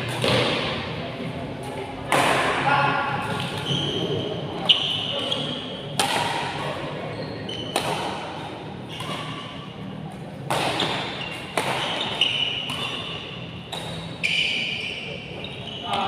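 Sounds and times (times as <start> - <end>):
rackets hitting shuttlecock: 0.0 - 1.0, 1.6 - 4.0, 5.8 - 6.9, 7.5 - 14.7
shoes squeaking on court floor: 3.2 - 6.0, 6.6 - 16.0.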